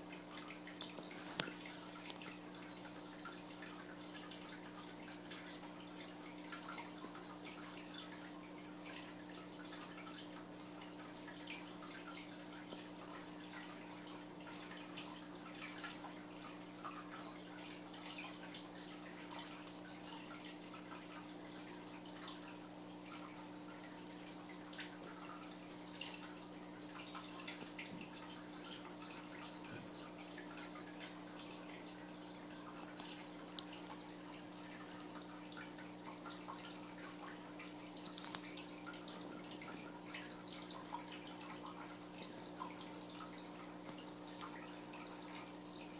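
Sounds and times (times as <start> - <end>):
water dripping and trickling: 0.0 - 45.9.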